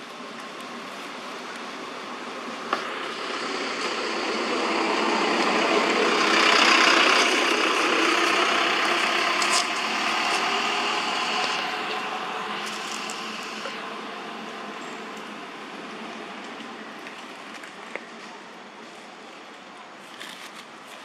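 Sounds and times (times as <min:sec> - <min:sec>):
motor vehicle passing: 0:02.6 - 0:16.4.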